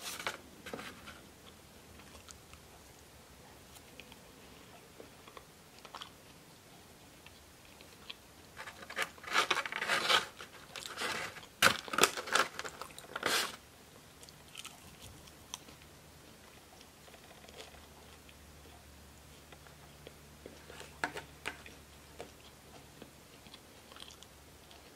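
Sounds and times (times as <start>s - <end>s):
styrofoam box crackling and scraping: 0.0s - 1.2s, 8.6s - 13.6s
close chewing: 1.4s - 11.6s, 12.4s - 24.9s.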